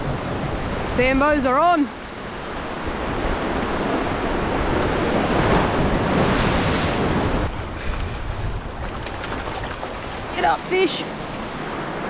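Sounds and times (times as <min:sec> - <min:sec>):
sea waves washing on shore: 0:00.0 - 0:12.0
wind rumbling on microphone: 0:00.0 - 0:12.0.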